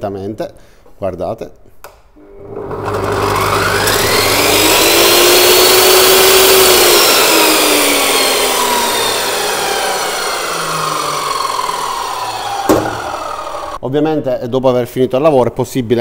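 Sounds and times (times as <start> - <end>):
cut-off saw whining: 2.2 - 13.8.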